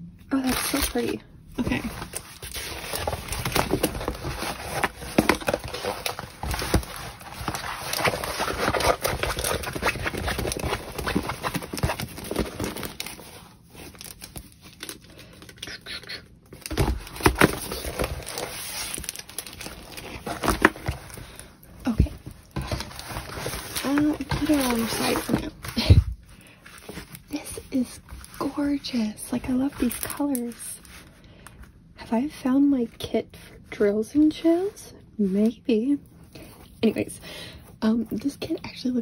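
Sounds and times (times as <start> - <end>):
plastic cover crinkling: 0.3 - 31.1.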